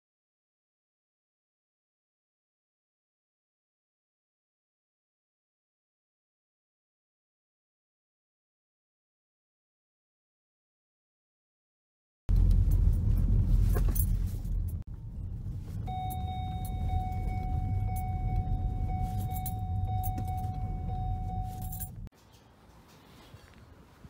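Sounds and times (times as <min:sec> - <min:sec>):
car rumbling: 0:12.3 - 0:24.0
steady high tone: 0:15.8 - 0:22.1.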